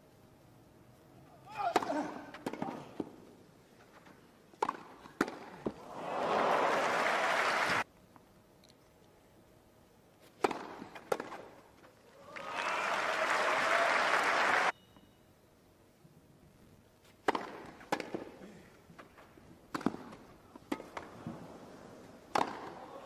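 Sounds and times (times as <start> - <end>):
tennis ball struck by rackets: 4.6 - 5.8, 10.3 - 11.6, 17.2 - 18.4, 19.7 - 21.1, 22.3 - 22.8
crowd applause: 5.8 - 7.8, 12.2 - 14.7.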